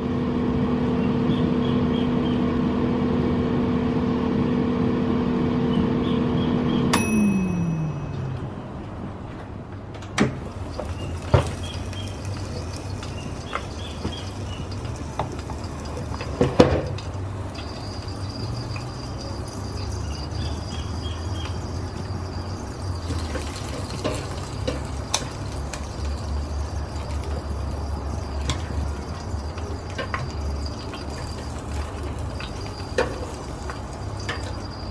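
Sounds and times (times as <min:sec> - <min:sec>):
low steady hum: 0:00.0 - 0:09.4
ribs sizzling and crackling: 0:10.4 - 0:34.9.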